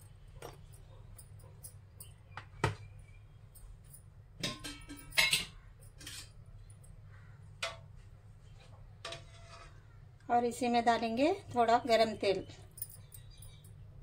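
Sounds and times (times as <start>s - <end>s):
steel utensils clinking: 4.4s - 6.4s.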